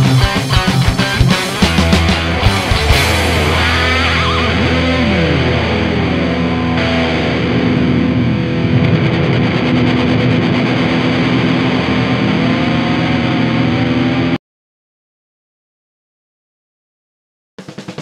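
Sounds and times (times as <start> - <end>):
distorted electric guitars: 0.0 - 14.4
heavy metal music: 0.0 - 14.4.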